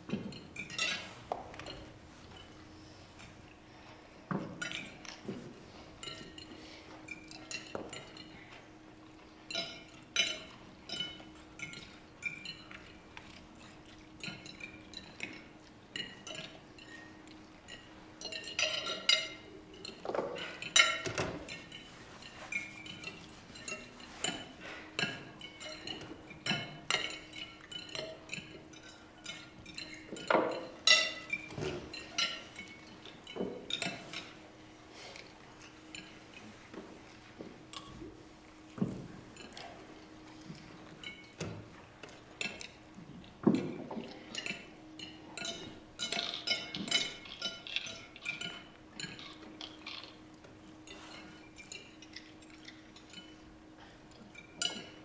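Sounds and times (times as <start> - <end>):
faint steady hum: 0.0 - 55.0
cutlery clinking on plates: 0.1 - 3.4, 4.3 - 8.6, 9.5 - 36.6, 38.8 - 42.8, 43.4 - 50.2, 50.8 - 55.0.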